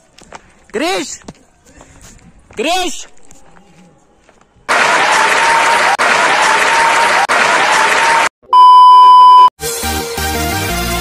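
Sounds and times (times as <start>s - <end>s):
crowd cheering and applause: 4.7s - 8.3s
loud steady beep: 8.5s - 9.5s.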